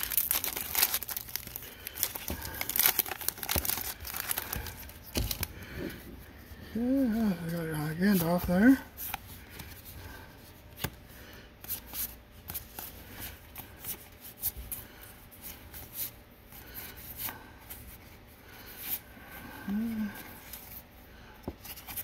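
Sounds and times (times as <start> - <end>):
low hum of voice: 6.6 - 8.8, 19.5 - 20.4.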